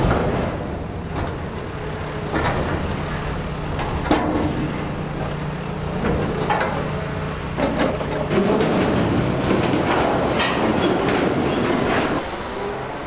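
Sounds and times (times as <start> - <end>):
excavator engine running: 0.0 - 13.0
steel sheeting scraping and clanking: 2.4 - 12.2.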